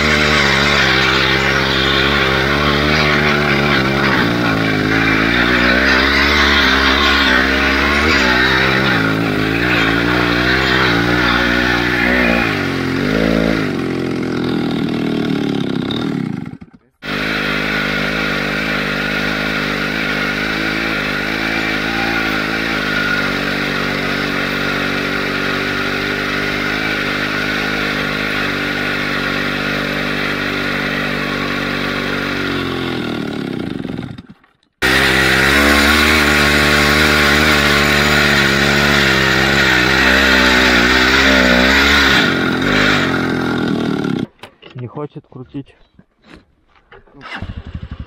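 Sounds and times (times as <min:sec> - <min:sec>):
small two-stroke engine running: 0:00.0 - 0:44.4, 0:47.2 - 0:48.0.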